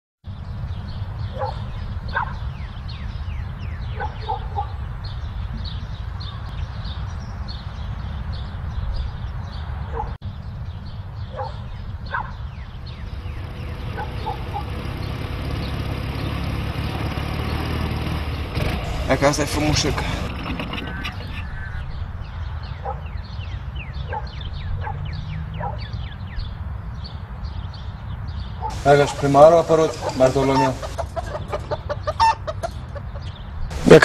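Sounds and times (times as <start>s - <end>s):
dog barking: 1.3s - 2.4s, 3.9s - 4.8s, 9.9s - 10.2s, 11.3s - 12.4s, 13.9s - 14.8s, 22.8s - 23.1s, 24.0s - 25.9s, 28.6s - 29.3s.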